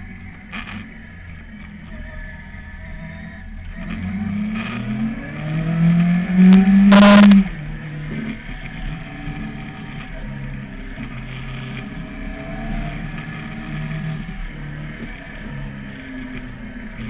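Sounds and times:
motorcycle engine revving: 3.7 - 17.0.

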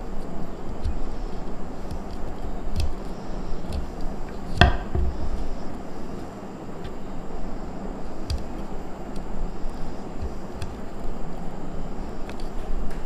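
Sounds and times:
knife chopping on wooden board: 1.8 - 5.5.

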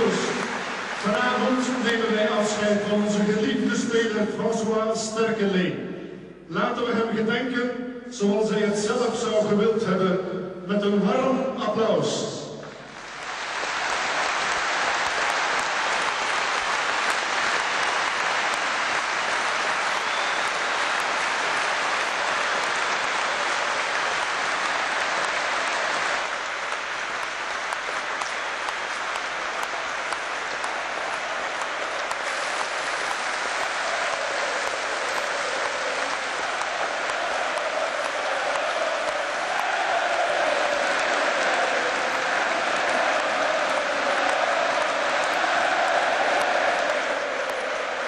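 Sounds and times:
stadium crowd applauding: 0.0 - 4.8, 12.6 - 48.0.

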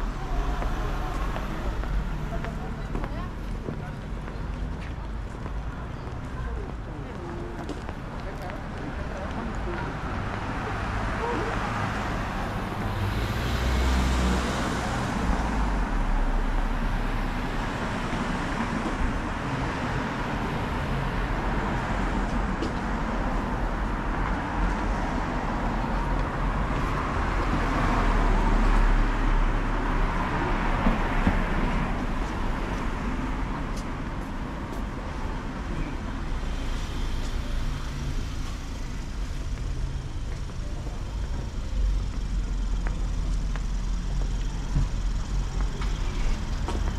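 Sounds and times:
low traffic rumble: 0.0 - 46.9
vehicles passing: 0.0 - 46.9.

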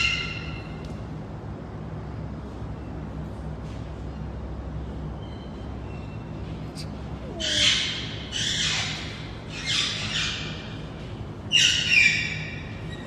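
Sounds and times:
parrot screeching: 7.3 - 9.0.

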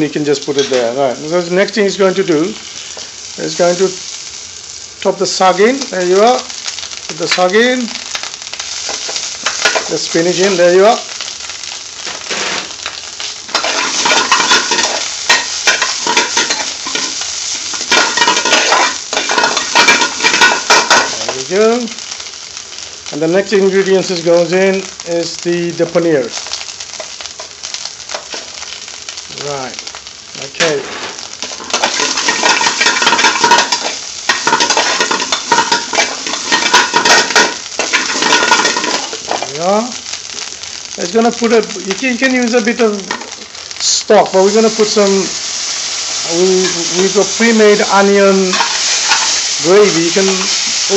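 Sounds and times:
vegetables sizzling in oil: 0.0 - 50.9
metal spoon scraping a pan: 13.5 - 21.2, 31.0 - 39.3, 48.5 - 49.6
metal spoon scraping frying pan: 48.5 - 49.4.

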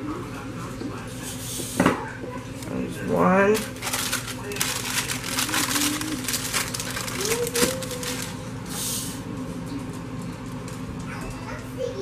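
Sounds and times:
plastic wrappers crinkling: 3.5 - 8.5.

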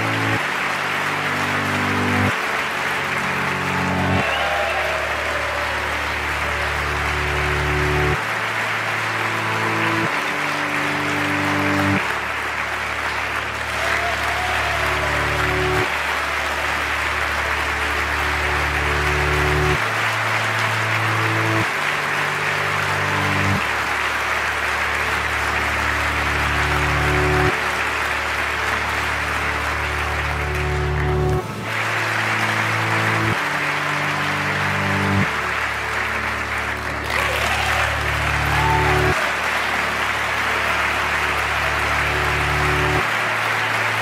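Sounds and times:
large audience applauding: 0.0 - 44.0
slow ambient music with low chords: 0.0 - 44.0.

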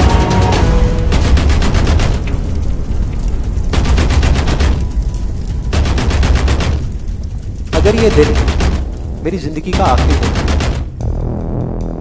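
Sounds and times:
soundtrack music with heavy bass: 0.0 - 1.9, 11.0 - 12.0
rapid drum-like hits: 0.0 - 2.6, 3.7 - 5.0, 5.7 - 7.0, 7.6 - 12.0.

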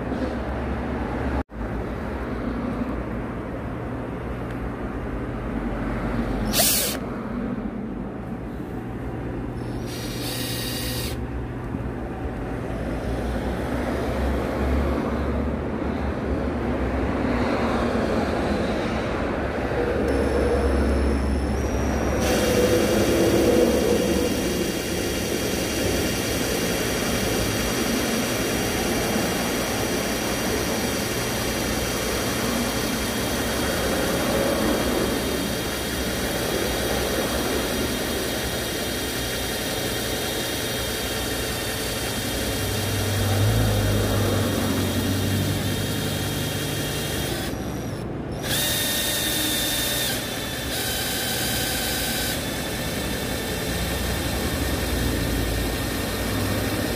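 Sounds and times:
cordless drill motor whining: 6.4 - 7.1, 9.6 - 11.3, 20.1 - 20.5, 21.6 - 56.9.

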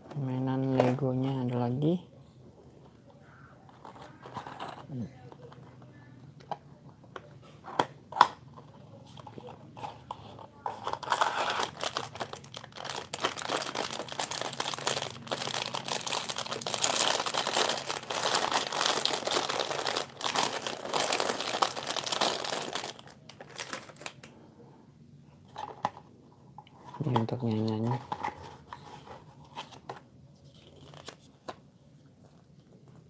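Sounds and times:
plastic bag of toy bricks crinkling: 10.8 - 24.3.

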